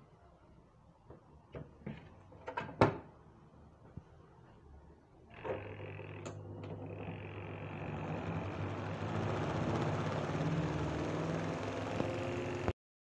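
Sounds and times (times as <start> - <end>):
washing machine motor hum: 5.3 - 12.8.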